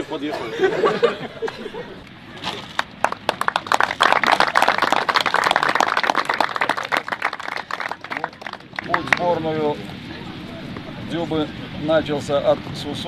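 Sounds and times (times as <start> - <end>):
group of people applauding: 2.7 - 9.3.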